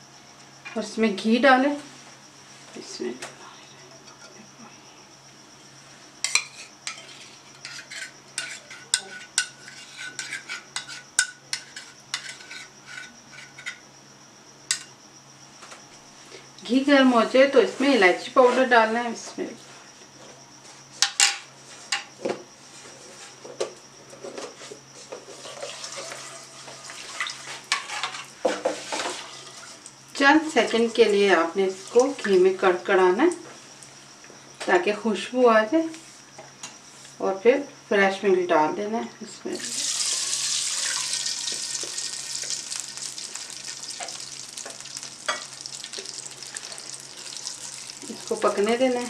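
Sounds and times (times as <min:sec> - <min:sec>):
spatula scraping in pan: 0:06.3 - 0:13.8, 0:25.2 - 0:29.8, 0:40.0 - 0:49.0
milk sizzling in hot oil: 0:25.3 - 0:32.3, 0:39.6 - 0:49.0.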